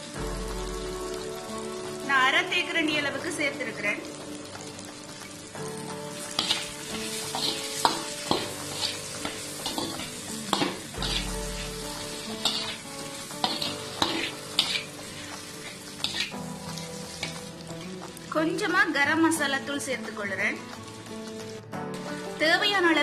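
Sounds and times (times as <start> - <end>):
oil sizzling: 0.0 - 23.0
spatula scraping and knocking pan: 6.4 - 17.4.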